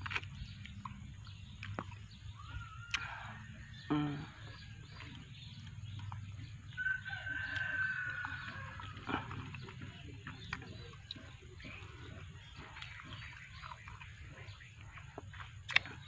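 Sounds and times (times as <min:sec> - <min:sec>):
eating clicks: 0:00.0 - 0:16.0
rooster crowing: 0:06.7 - 0:09.2.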